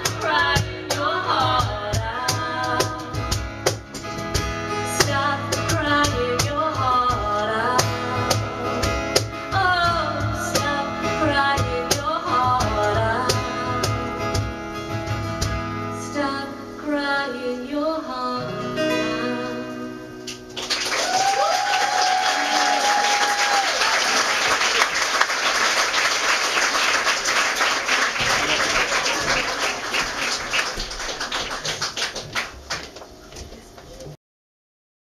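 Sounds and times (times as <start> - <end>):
woman singing: 0.0 - 3.3, 4.8 - 14.4, 15.9 - 20.0
acoustic guitar: 0.0 - 34.2
audience clapping and cheering: 20.3 - 33.3
long whoop: 20.9 - 24.2.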